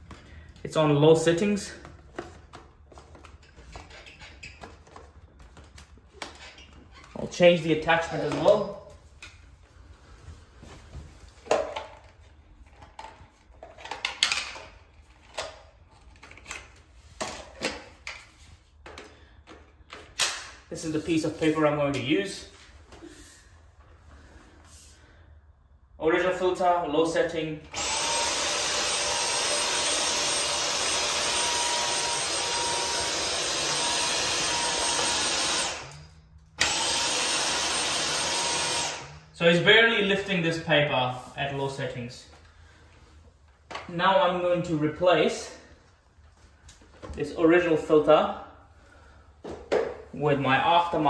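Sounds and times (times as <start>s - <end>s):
vacuum cleaner running: 27.7s - 39.2s.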